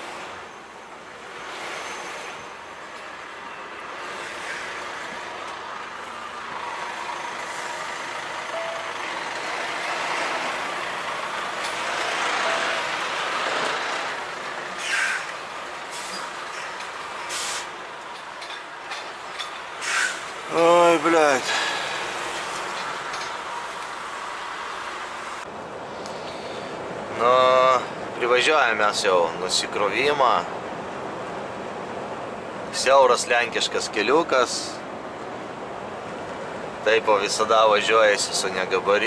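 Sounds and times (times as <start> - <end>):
truck engine and road noise: 0.0 - 39.0
air brake hisses: 14.8 - 15.3, 17.3 - 17.8, 19.8 - 20.3.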